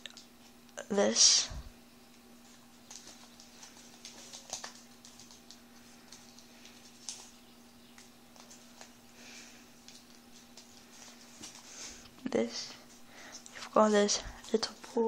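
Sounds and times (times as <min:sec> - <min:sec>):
faint steady hum: 0:00.0 - 0:15.0
paper crinkling: 0:02.4 - 0:11.8.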